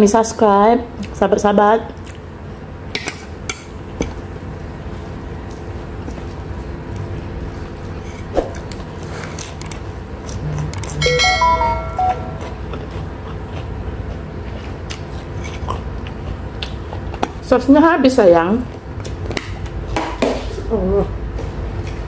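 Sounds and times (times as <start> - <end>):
electronic chime: 11.0 - 12.6.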